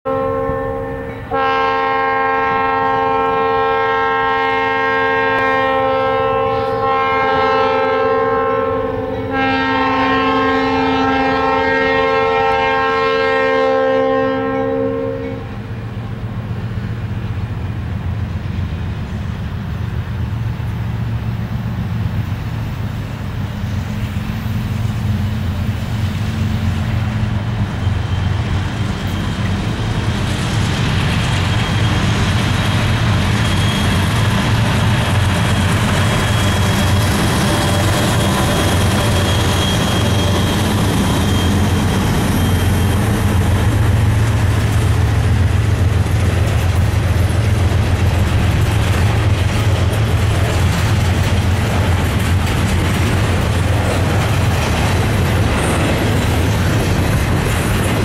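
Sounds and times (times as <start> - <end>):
locomotive air horn blasts: 0.1 - 15.8
train rumble: 0.1 - 58.0.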